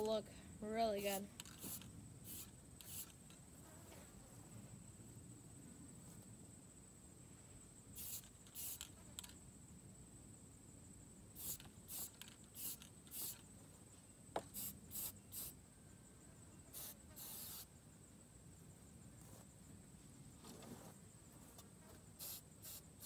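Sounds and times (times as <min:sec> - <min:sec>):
aerosol spray can hissing: 0:01.4 - 0:03.2, 0:08.0 - 0:08.9, 0:11.4 - 0:13.4, 0:14.4 - 0:15.6, 0:16.7 - 0:17.7, 0:22.2 - 0:23.0.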